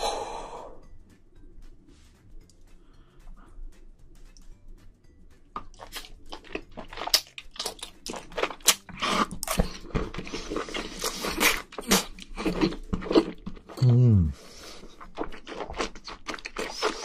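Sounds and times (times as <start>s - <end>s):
close crunching and chewing: 5.6s - 13.8s, 14.4s - 17.0s.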